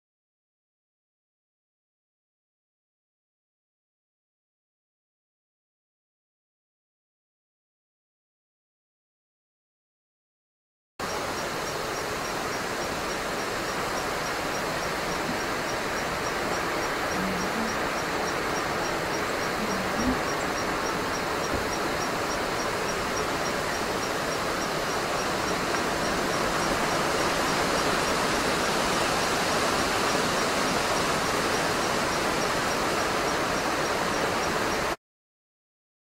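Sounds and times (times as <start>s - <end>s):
breeze rustling leaves: 11.0s - 35.0s.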